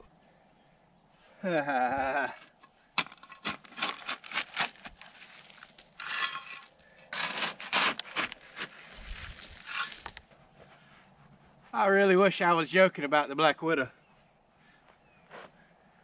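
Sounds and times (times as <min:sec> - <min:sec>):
shovel clicks and knocks: 0:02.4 - 0:08.8
shovel scraping into ground: 0:03.0 - 0:10.2.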